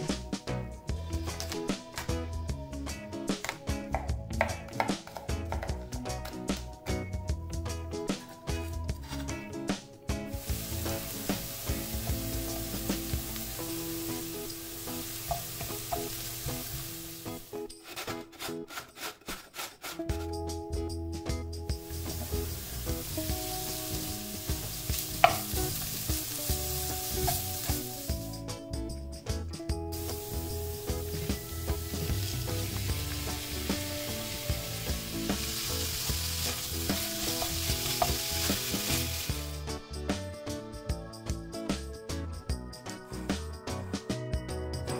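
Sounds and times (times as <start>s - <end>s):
onion sizzling in a frying pan: 10.3s - 17.6s, 21.8s - 28.4s, 29.9s - 39.6s
spatula scraping pan: 17.6s - 20.2s
carrot grated on metal grater: 17.8s - 20.0s.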